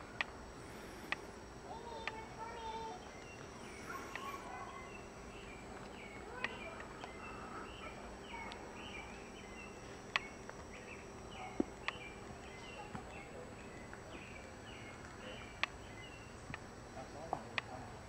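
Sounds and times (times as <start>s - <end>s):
chorus of high chirps: 0.0s - 17.8s.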